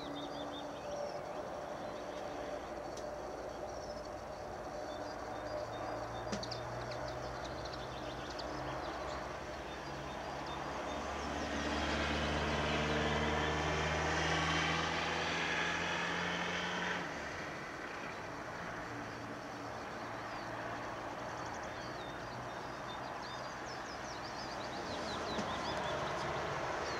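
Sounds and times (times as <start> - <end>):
small birds chirping: 0.0 - 11.5, 19.6 - 26.9.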